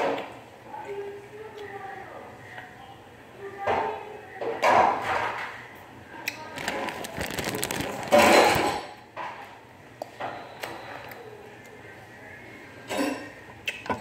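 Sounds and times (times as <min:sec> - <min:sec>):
plastic bag crinkling and rustling: 0:06.4 - 0:09.0.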